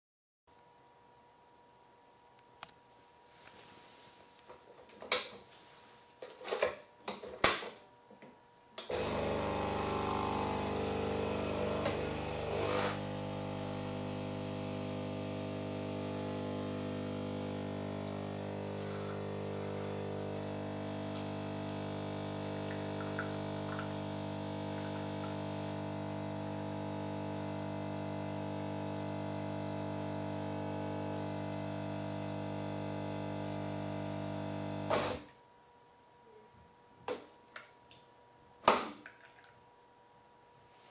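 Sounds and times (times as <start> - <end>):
espresso machine pump humming: 8.8 - 35.2.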